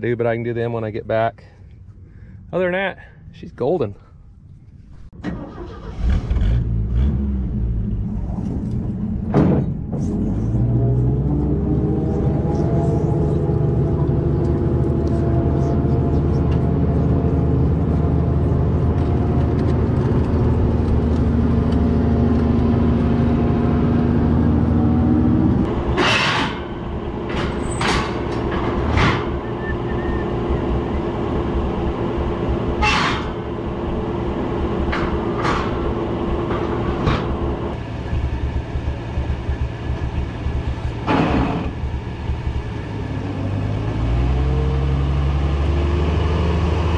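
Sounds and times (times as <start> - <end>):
heavy vehicle engine running: 5.1 - 46.9
metal ramps clanking: 25.8 - 29.6, 32.8 - 33.5, 34.8 - 37.6.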